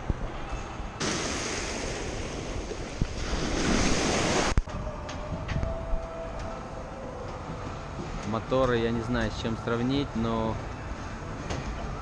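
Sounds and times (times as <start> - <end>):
waves washing up pebble beach: 1.0 - 4.6.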